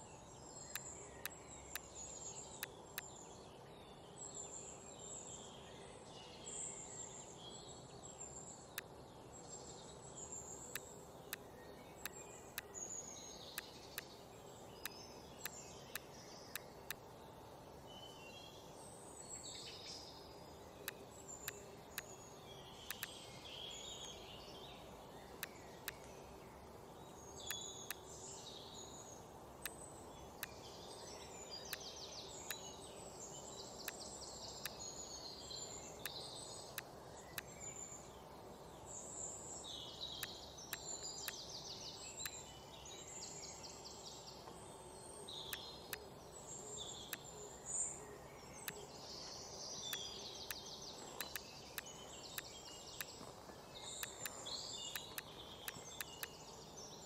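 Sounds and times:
faint steady hum: 0:00.0 - 0:57.0
small birds chirping and trilling: 0:00.0 - 0:57.0
mouse clicks: 0:20.8 - 0:22.2, 0:22.9 - 0:23.2, 0:49.9 - 0:53.2, 0:54.0 - 0:56.4.

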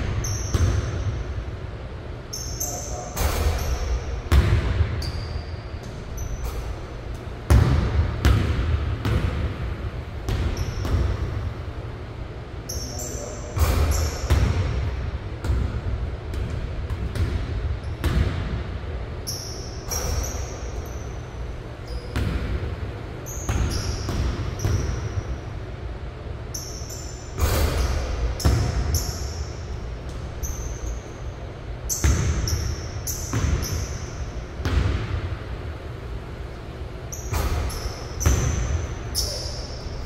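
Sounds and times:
sneaker squeaks: 0:00.0 - 0:01.4, 0:02.2 - 0:07.8, 0:10.3 - 0:11.5, 0:12.6 - 0:14.8, 0:17.1 - 0:18.4, 0:19.2 - 0:25.5, 0:26.5 - 0:35.0, 0:37.0 - 0:40.0
basketball bouncing on hardwood floor: 0:04.3 - 0:04.9, 0:07.5 - 0:09.6, 0:10.3 - 0:11.3, 0:13.6 - 0:14.8, 0:15.4 - 0:18.6, 0:22.1 - 0:22.6, 0:27.4 - 0:29.0, 0:32.0 - 0:33.9, 0:34.6 - 0:35.2, 0:37.3 - 0:38.8.

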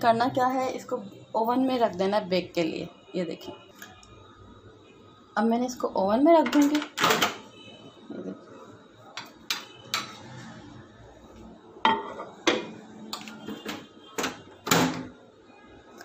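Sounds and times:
plate clattering on glass: 0:11.9 - 0:12.7
microwave door opening and shutting: 0:13.4 - 0:15.2.

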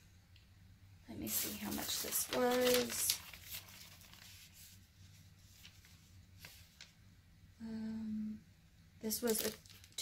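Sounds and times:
low steady hum: 0:00.0 - 0:10.0
package rustling and tapping: 0:01.5 - 0:04.3, 0:09.2 - 0:10.0.

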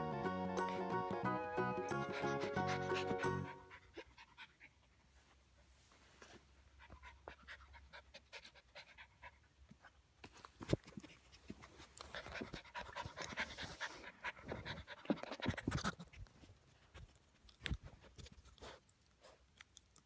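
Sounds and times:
puppy panting: 0:01.7 - 0:05.1, 0:06.7 - 0:09.9, 0:10.8 - 0:19.6.

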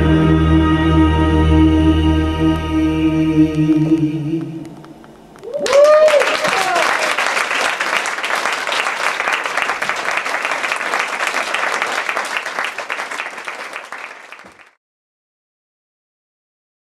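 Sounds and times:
audience applauding: 0:04.8 - 0:14.8.

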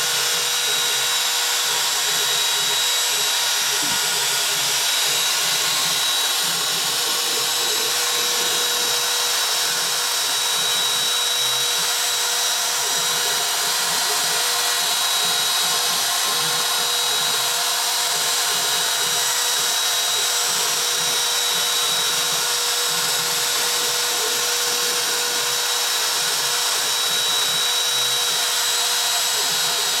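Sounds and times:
router spindle whining: 0:00.0 - 0:30.0.

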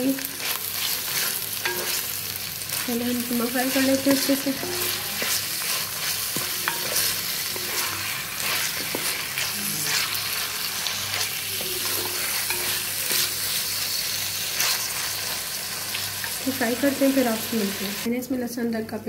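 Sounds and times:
meat and onions sizzling in pot: 0:00.0 - 0:18.3
wooden spoon scraping pot: 0:02.7 - 0:13.8.

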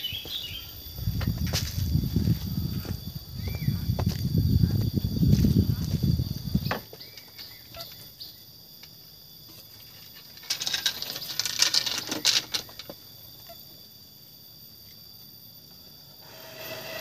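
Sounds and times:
insects chirping: 0:00.0 - 0:17.0
crackling rustle: 0:09.5 - 0:13.6.

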